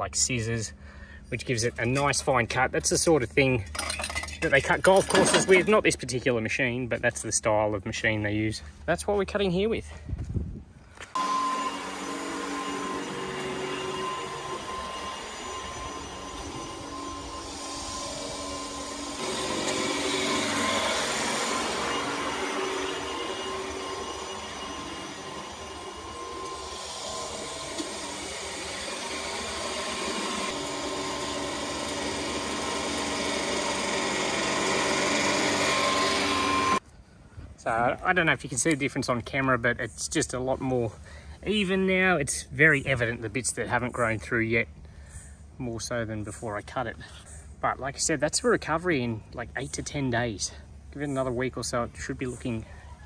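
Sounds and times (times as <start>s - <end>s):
reel mower whining and whirring: 5.0s - 5.7s, 11.2s - 36.8s.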